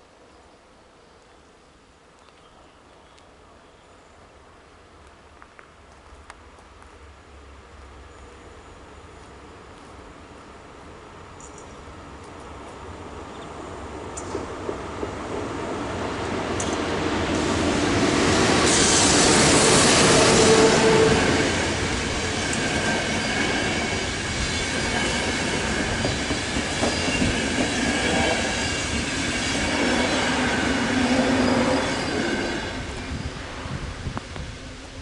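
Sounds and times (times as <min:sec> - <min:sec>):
train wheels rumbling on rails: 0:06.2 - 0:35.0
high wheel squeal: 0:26.8 - 0:27.4, 0:28.4 - 0:33.4.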